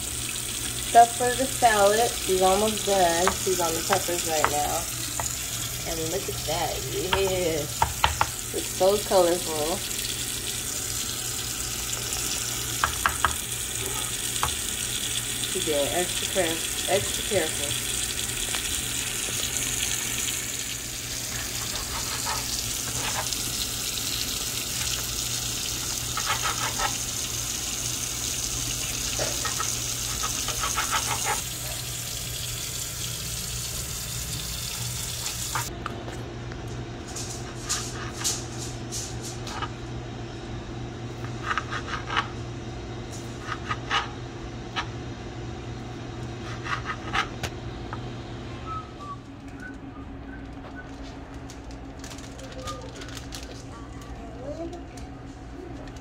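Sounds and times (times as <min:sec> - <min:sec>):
water running from tap: 0:00.0 - 0:35.7
kitchen knocks and clicks: 0:07.1 - 0:08.3.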